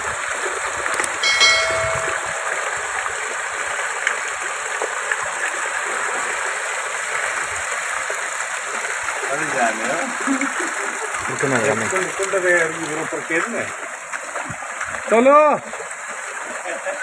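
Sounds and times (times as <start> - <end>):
floodwater rushing over a step: 0.0 - 17.0
short bell-like chime: 1.2 - 3.0.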